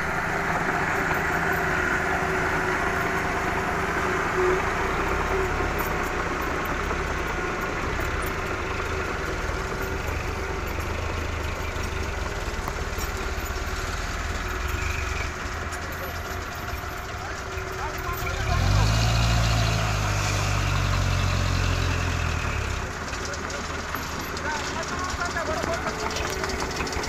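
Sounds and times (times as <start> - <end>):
diesel truck engine running: 0.0 - 27.0.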